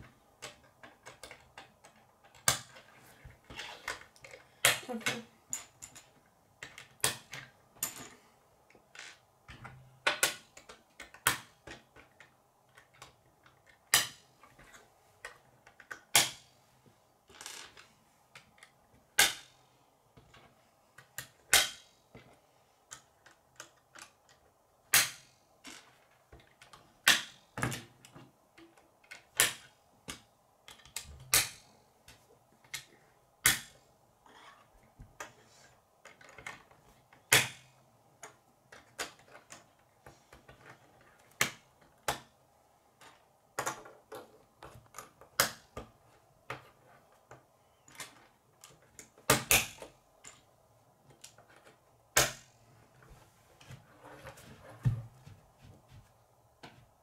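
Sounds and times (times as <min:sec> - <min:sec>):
plastic pieces clicking together: 0:00.4 - 0:02.9.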